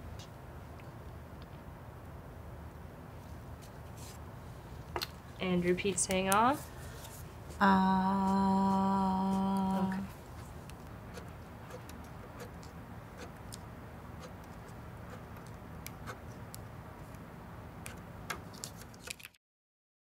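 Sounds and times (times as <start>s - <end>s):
low room hum: 0.0s - 19.4s
pen ticking and scratching on paper: 8.2s - 17.2s.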